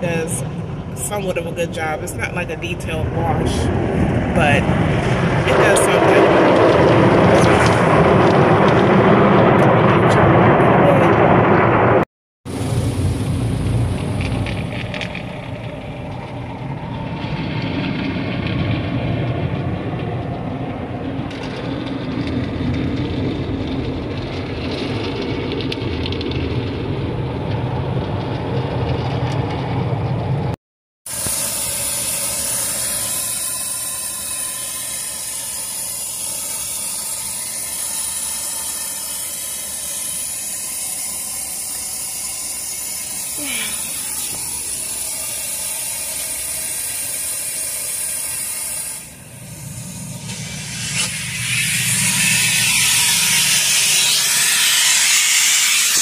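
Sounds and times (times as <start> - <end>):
car wash water and machinery: 0.0 - 56.0
high hiss of spray: 31.1 - 56.0.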